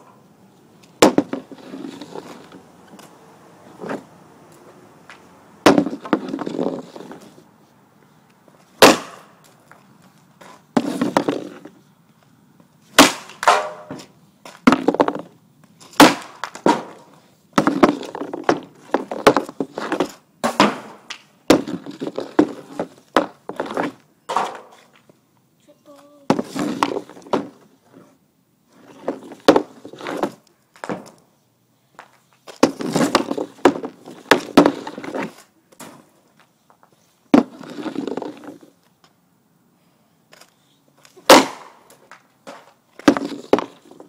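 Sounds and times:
pucks slamming into wooden boards: 0.8s - 2.6s, 5.1s - 7.3s, 8.8s - 9.6s, 10.4s - 11.8s, 12.9s - 25.0s, 26.3s - 28.1s, 28.8s - 31.2s, 32.5s - 36.1s, 37.3s - 38.7s, 41.1s - 44.0s
hockey stick striking puck: 5.7s - 7.2s, 8.8s - 9.3s, 10.8s - 11.7s, 13.0s - 15.3s, 15.9s - 24.8s, 32.6s - 36.0s, 41.3s - 44.0s.

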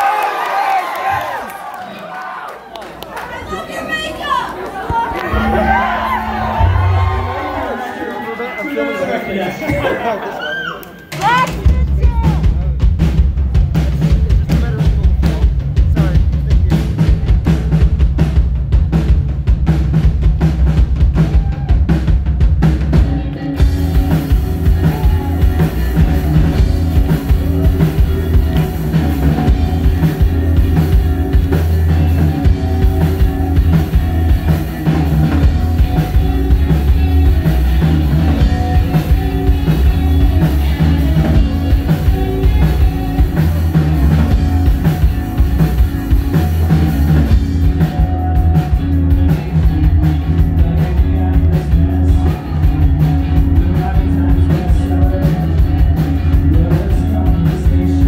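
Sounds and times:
rock band playing chords: 4.8s - 58.0s
drum kit beat: 5.3s - 7.7s, 11.1s - 58.0s.

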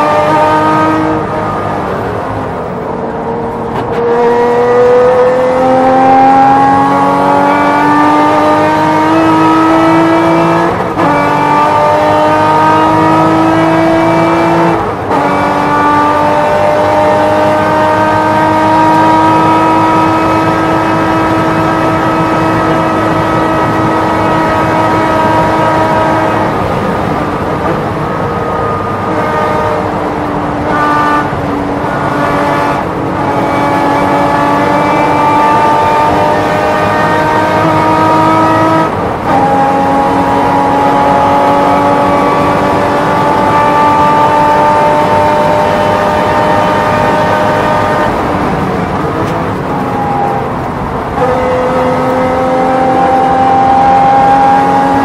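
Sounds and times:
race car engine at full throttle: 0.0s - 55.0s.

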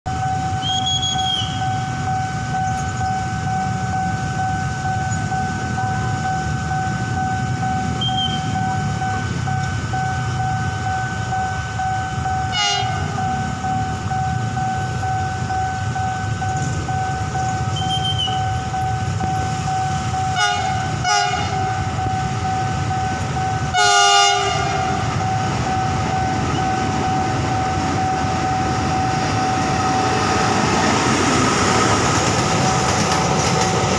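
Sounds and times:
diesel locomotive horn blasts: 0.1s - 4.4s, 7.3s - 9.6s, 11.4s - 14.5s, 15.4s - 22.6s, 23.4s - 27.0s
level crossing two-pitch alarm: 0.1s - 31.8s
low traffic rumble: 0.1s - 33.9s.

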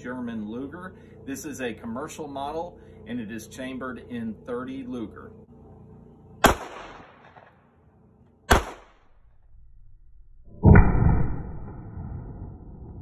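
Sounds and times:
pistol shots: 6.4s - 7.6s, 8.5s - 9.1s
loud sustained rumble: 9.2s - 13.0s.

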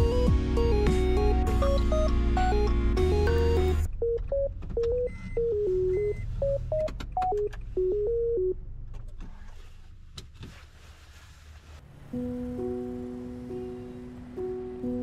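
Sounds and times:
electronic beeping melody: 0.6s - 8.6s
clicks: 6.7s - 7.7s.

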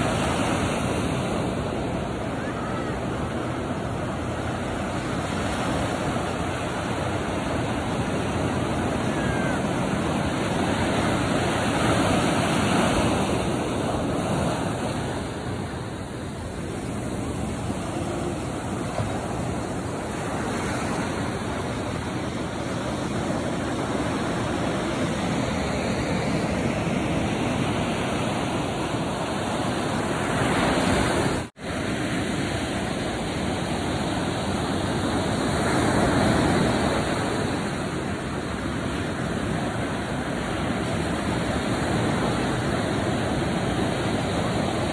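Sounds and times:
surf breaking on sand: 0.0s - 44.9s.

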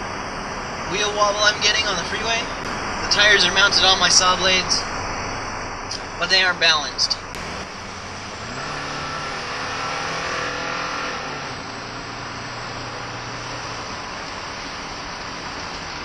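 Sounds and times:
road and wind noise hiss: 0.0s - 16.0s
car engine accelerating: 1.6s - 16.0s.

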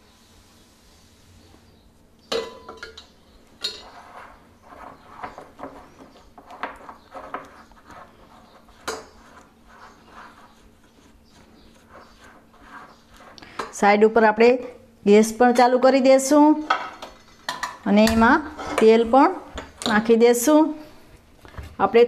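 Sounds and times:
whisk scraping glass bowl: 3.6s - 13.7s.

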